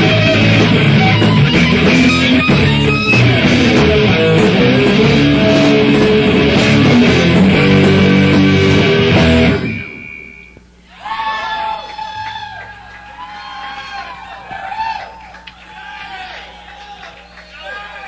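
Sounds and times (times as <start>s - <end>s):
rock band with electric guitar: 0.0s - 10.8s.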